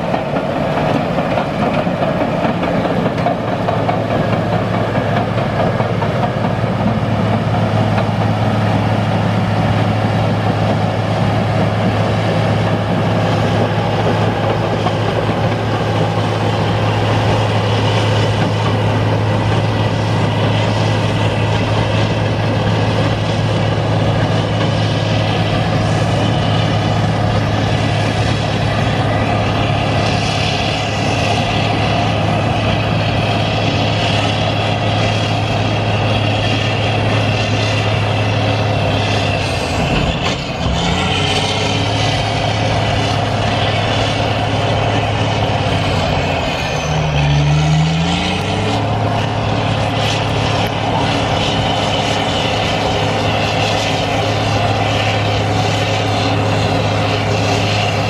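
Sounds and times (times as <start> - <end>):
bulldozer diesel engine under load: 0.0 - 58.0.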